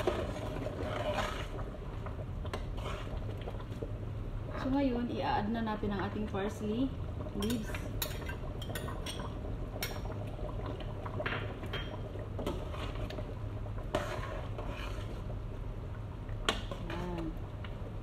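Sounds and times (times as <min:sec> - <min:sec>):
metal ladle scraping a pot: 0:00.0 - 0:01.6, 0:02.5 - 0:03.4, 0:12.4 - 0:13.2, 0:13.8 - 0:15.3.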